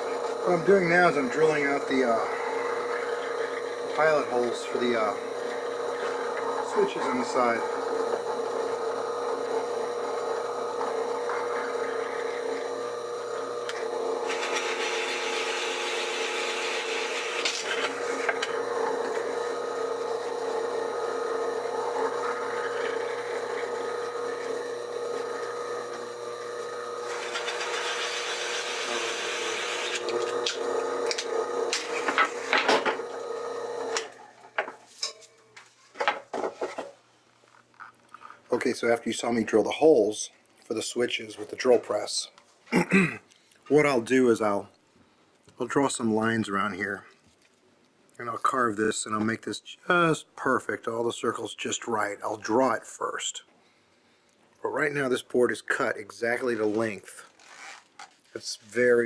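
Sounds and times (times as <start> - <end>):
drill bit boring wood: 0.0 - 34.7
drill press motor hum: 0.0 - 34.8.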